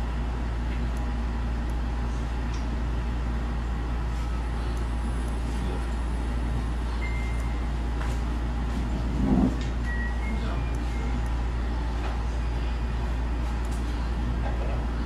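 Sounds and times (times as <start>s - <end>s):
low rumble: 8.8s - 9.8s.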